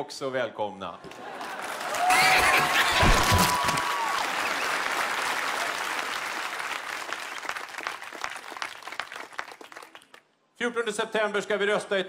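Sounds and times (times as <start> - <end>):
crowd applauding: 1.0 - 10.3.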